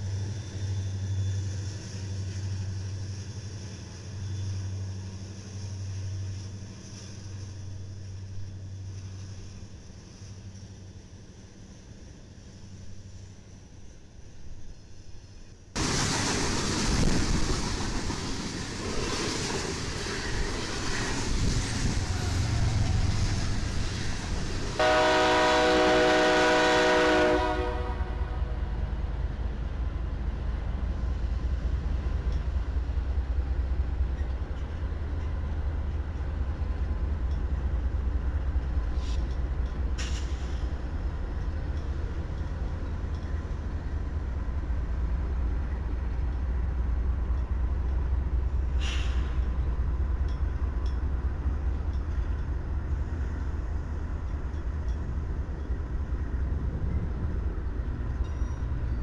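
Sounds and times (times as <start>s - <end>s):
freight train rushing past: 0.0s - 59.0s
low locomotive rumble: 0.0s - 59.0s
train clanks: 0.0s - 59.0s
locomotive horn blast: 24.8s - 28.8s.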